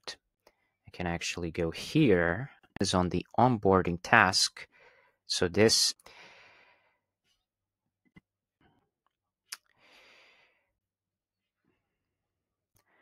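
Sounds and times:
soft breath: 0:06.1 - 0:07.1, 0:09.8 - 0:10.8.

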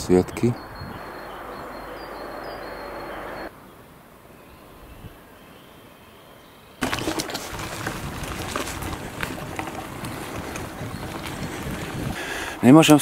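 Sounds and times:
outdoor background noise: 0:00.0 - 0:13.0
rustling and crackling: 0:06.8 - 0:13.0.

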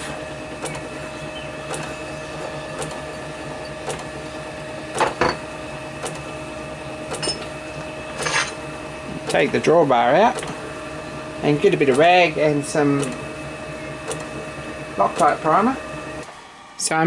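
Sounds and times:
machine hum: 0:00.0 - 0:17.0
light machine clicks: 0:00.6 - 0:00.9, 0:01.7 - 0:01.9, 0:02.8 - 0:03.0, 0:03.6 - 0:04.1, 0:10.3 - 0:10.6, 0:12.9 - 0:13.2, 0:14.0 - 0:14.3, 0:15.2 - 0:15.4.

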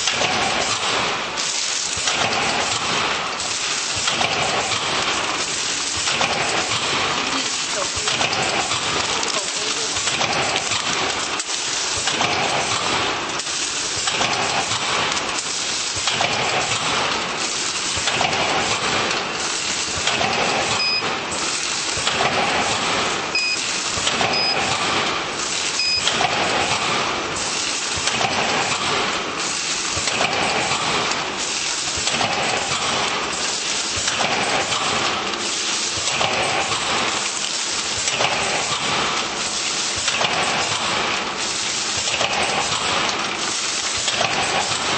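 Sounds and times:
bagging machine clatter and hiss: 0:00.0 - 0:44.9
short touchscreen beeps: 0:20.8 - 0:21.1, 0:23.4 - 0:23.6, 0:24.3 - 0:24.6, 0:25.8 - 0:26.1.

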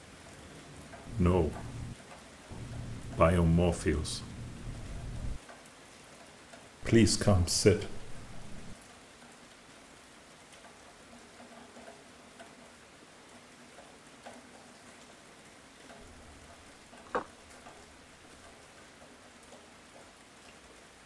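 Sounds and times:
faint rain patter: 0:00.0 - 0:21.0
soft low rumble: 0:01.1 - 0:05.4, 0:07.9 - 0:08.8.

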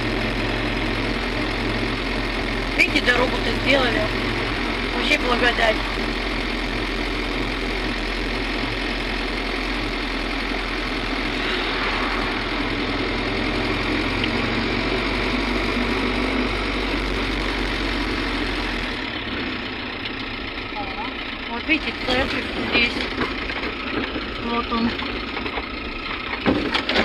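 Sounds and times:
car engine and tyre noise: 0:00.0 - 0:27.0.

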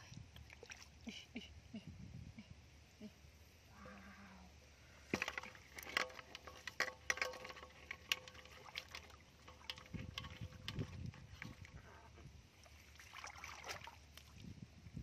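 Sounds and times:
fish splashing in metal basin: 0:05.1 - 0:11.8, 0:12.6 - 0:14.0
hands sloshing in muddy water: 0:12.5 - 0:14.6.

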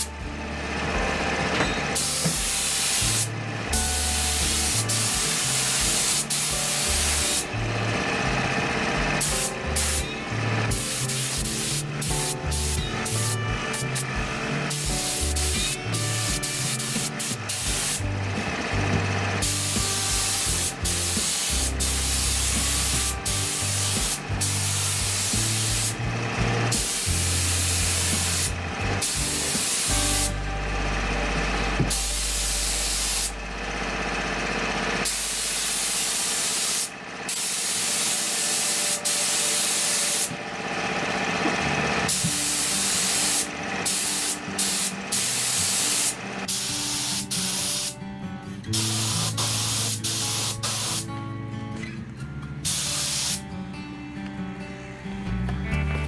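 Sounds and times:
paint spray gun hissing: 0:02.0 - 0:07.6, 0:09.2 - 0:10.1, 0:10.7 - 0:14.1, 0:14.7 - 0:18.2, 0:19.4 - 0:26.0, 0:26.7 - 0:30.4, 0:31.8 - 0:33.4, 0:35.0 - 0:40.3, 0:41.3 - 0:48.0, 0:48.7 - 0:51.1, 0:52.6 - 0:53.4.

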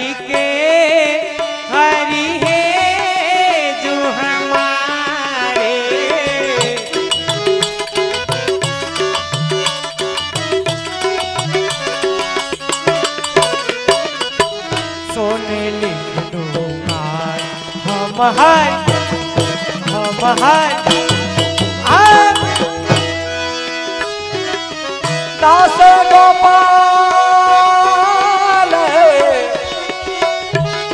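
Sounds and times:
devotional folk music: 0:00.0 - 0:30.9
tabla and percussion: 0:00.0 - 0:30.9.

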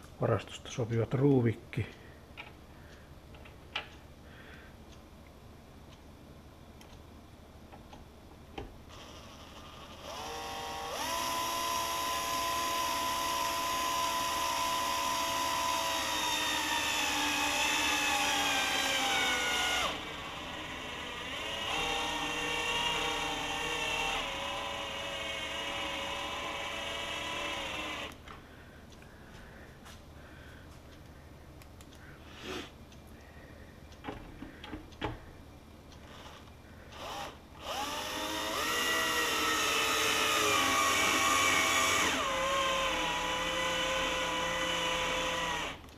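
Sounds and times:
cordless drill motor whine: 0:08.9 - 0:28.2, 0:36.0 - 0:45.9.

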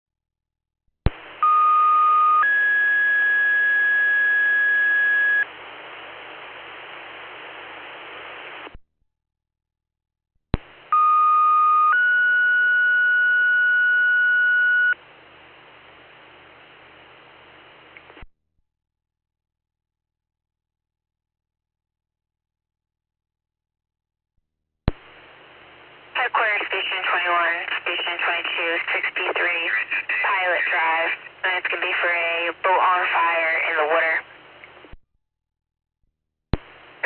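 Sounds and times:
radio hiss: 0:05.5 - 0:08.8, 0:24.9 - 0:34.8.

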